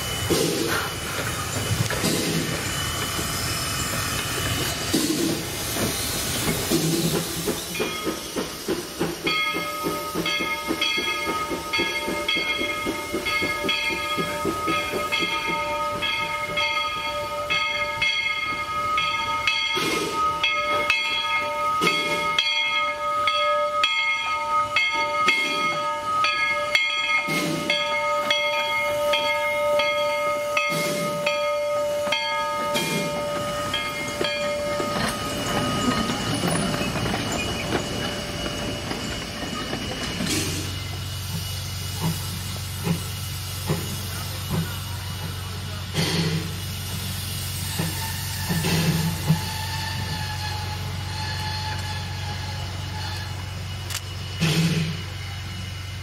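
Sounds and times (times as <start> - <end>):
steam hissing: 0.0 - 56.0
high-pitched ringing tones: 9.3 - 41.6.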